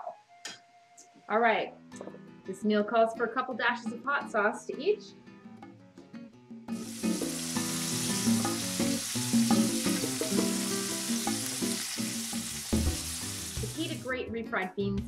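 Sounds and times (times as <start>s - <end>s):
background music: 0.0s - 15.0s
meat sizzling in a frying pan: 6.8s - 14.0s.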